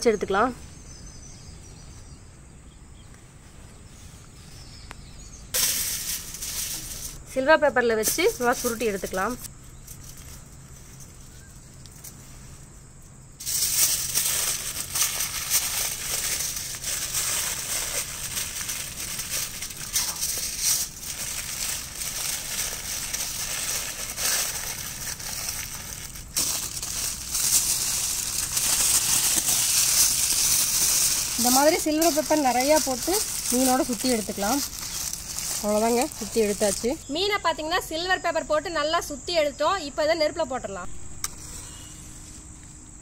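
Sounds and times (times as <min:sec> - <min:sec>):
aluminium foil crinkling: 0:05.5 - 0:07.2, 0:08.0 - 0:12.6, 0:13.4 - 0:37.1.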